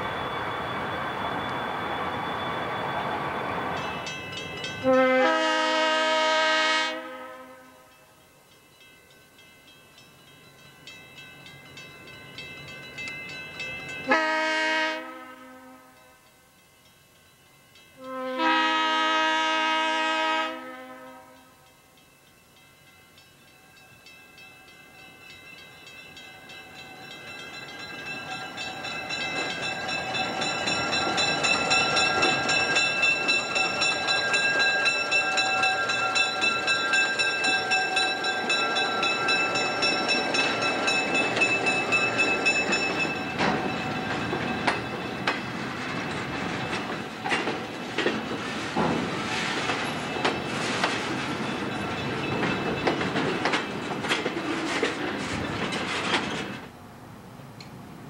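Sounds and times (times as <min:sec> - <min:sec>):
locomotive rumble passing: 0:00.0 - 0:06.6, 0:24.6 - 0:58.0
locomotive horn blast: 0:04.8 - 0:07.8, 0:14.1 - 0:16.0, 0:18.0 - 0:21.5.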